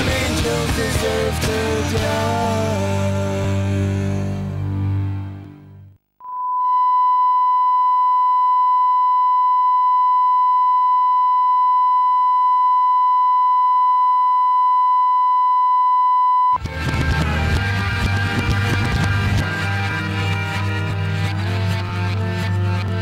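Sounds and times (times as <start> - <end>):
music: 0.0 - 6.0, 16.6 - 23.0
steady test tone: 6.2 - 16.6.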